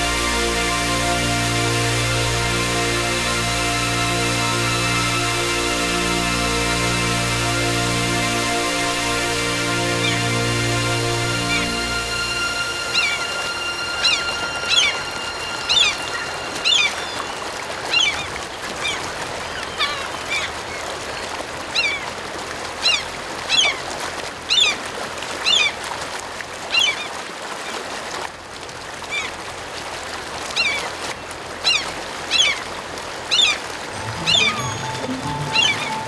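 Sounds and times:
gulls calling: 0:00.0 - 0:20.8, 0:33.3 - 0:36.0.

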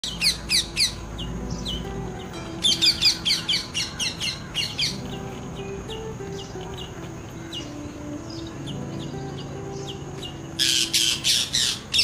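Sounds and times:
soft background music: 0:00.0 - 0:12.0
parakeet screeching: 0:02.7 - 0:05.0, 0:10.6 - 0:12.0.

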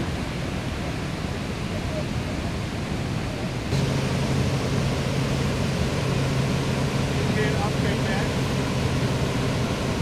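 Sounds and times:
waterfall roaring: 0:00.0 - 0:10.0
low hum: 0:03.7 - 0:10.0.

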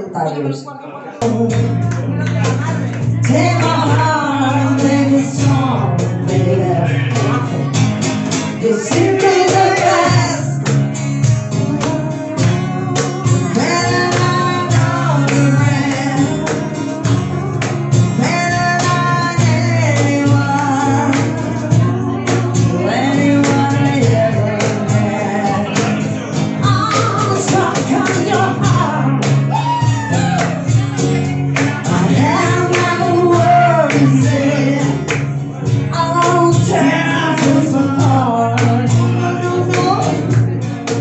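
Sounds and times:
acoustic guitar: 0:00.0 - 0:41.0
cajon beat: 0:01.2 - 0:41.0
upright double bass: 0:01.2 - 0:41.0
two women singing: 0:02.6 - 0:07.7, 0:08.5 - 0:40.6.

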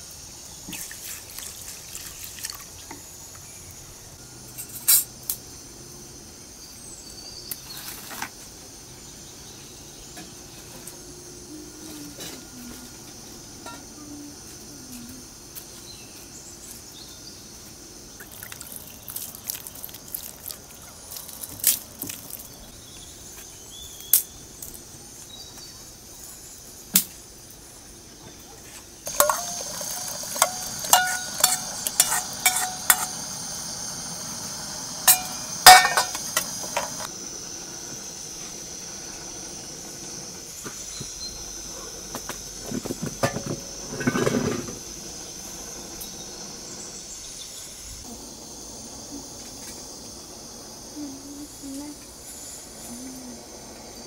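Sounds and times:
steady hiss: 0:00.0 - 0:28.2, 0:28.8 - 0:54.0
liquid pouring: 0:00.8 - 0:02.9, 0:18.2 - 0:21.5, 0:29.1 - 0:32.4
ladle clinking on metal: 0:29.1 - 0:33.3, 0:35.1 - 0:37.0.

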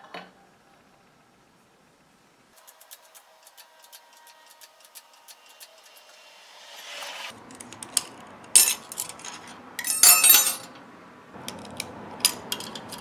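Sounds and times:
metal tools clicking and clinking: 0:07.5 - 0:10.8, 0:11.5 - 0:13.0
steel ringing clatter: 0:08.6 - 0:10.7.

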